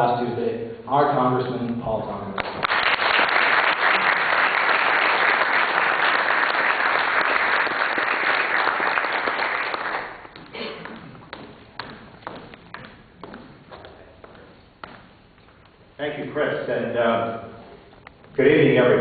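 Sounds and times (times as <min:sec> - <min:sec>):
audience applauding: 0:02.4 - 0:10.4.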